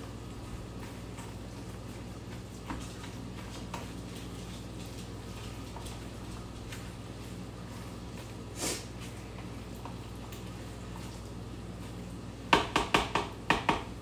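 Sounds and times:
steady low hum: 0.0 - 12.6.

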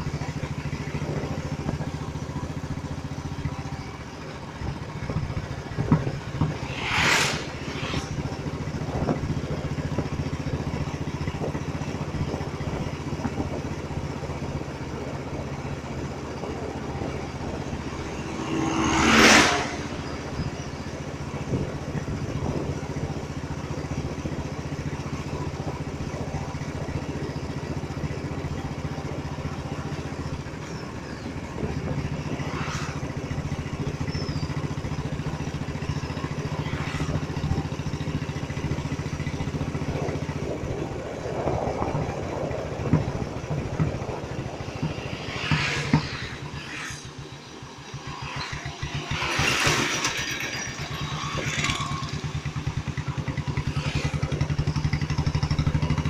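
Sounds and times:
truck passing: 3.2 - 56.0
wind rushing over microphone: 4.7 - 24.4, 30.4 - 37.8, 38.6 - 55.0
motorcycle engine thumping: 5.0 - 6.8, 41.4 - 46.7
vehicle rushing past: 5.4 - 9.8, 16.0 - 22.0, 31.0 - 38.2, 39.4 - 56.0.

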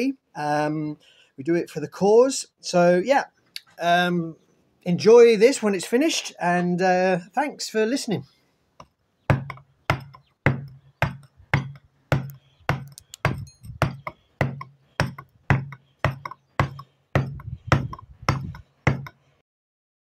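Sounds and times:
mallet striking chisel on stone: 8.8 - 19.2.

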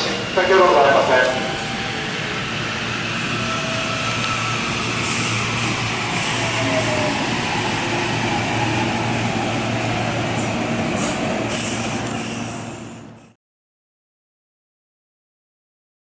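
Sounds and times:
electric train running hum: 0.0 - 13.3
falling brake whine: 1.0 - 12.8.

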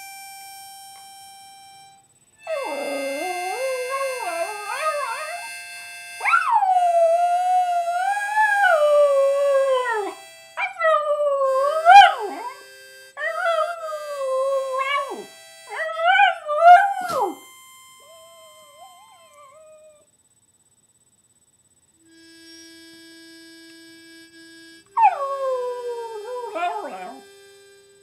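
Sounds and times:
harmonica chords: 0.0 - 20.0, 22.0 - 28.0
dog howling: 2.4 - 5.6, 6.2 - 12.6, 13.2 - 17.4, 25.0 - 27.2.

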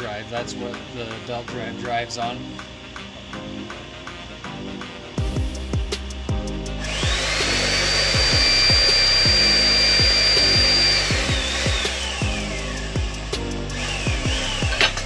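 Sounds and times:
hydraulic press pump motor whining: 6.8 - 15.0.

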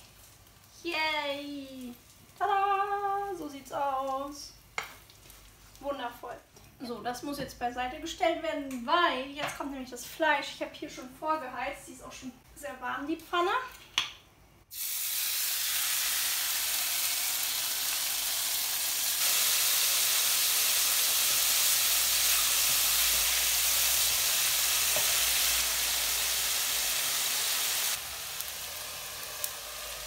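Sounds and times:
meat sizzling in a frying pan: 14.7 - 30.0.

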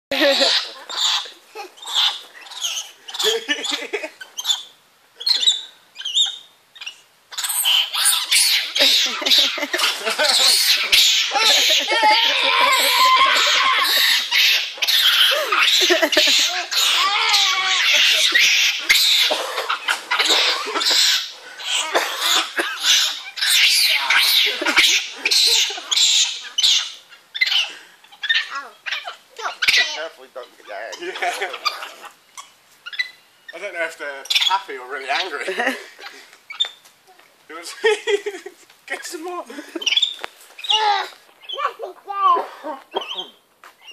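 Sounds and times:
small monkeys squeaking: 0.1 - 36.9, 38.9 - 43.9.

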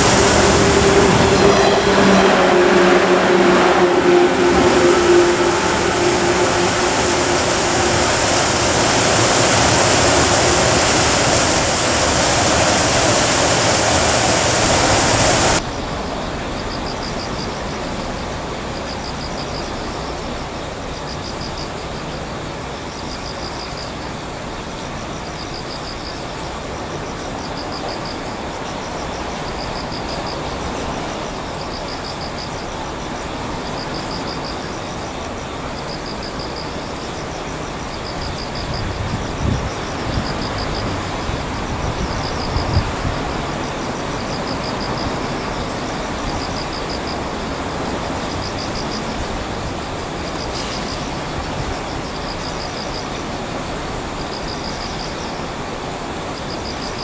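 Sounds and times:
high pulsed chirp: 0.0 - 15.6
rail yard noise: 0.0 - 57.0
traffic: 0.0 - 57.0.

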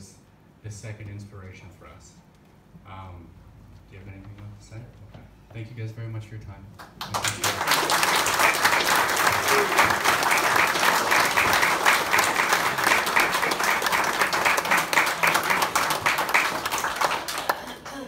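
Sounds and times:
audience applauding: 6.8 - 18.0.

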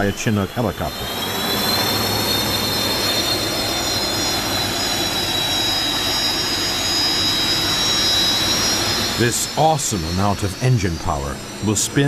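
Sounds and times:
jet turbine engine whine and roar: 0.0 - 12.0.

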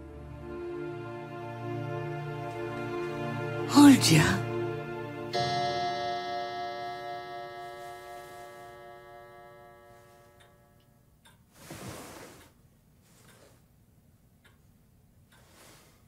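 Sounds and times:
sustained musical chord: 0.0 - 11.0
clock ticking faintly: 5.4 - 11.5, 12.4 - 15.8.

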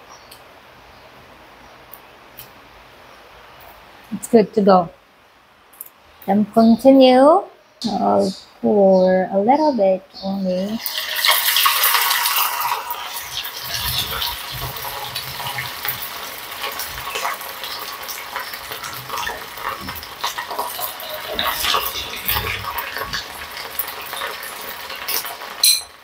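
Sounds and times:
oil sizzling and crackling: 10.5 - 26.0
metal spoon clinking: 25.6 - 26.0.

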